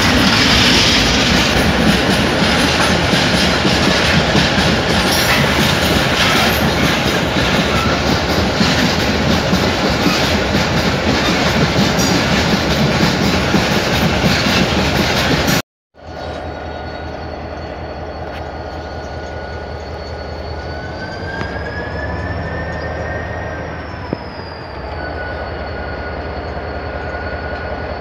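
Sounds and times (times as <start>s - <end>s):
train wheels clattering on rails: 0.0s - 15.6s.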